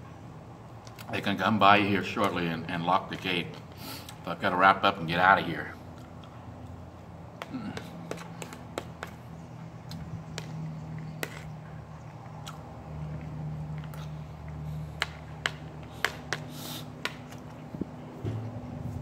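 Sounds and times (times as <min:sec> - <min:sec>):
sharp clicks and smacks: 0:07.4 - 0:09.2, 0:09.8 - 0:11.5, 0:12.2 - 0:17.6.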